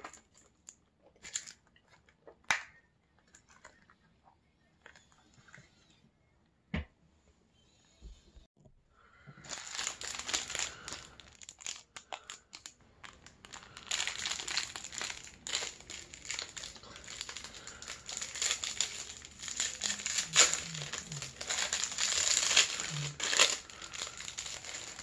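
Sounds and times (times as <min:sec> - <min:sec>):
plastic wrapper crackling: 0:09.4 - 0:25.0.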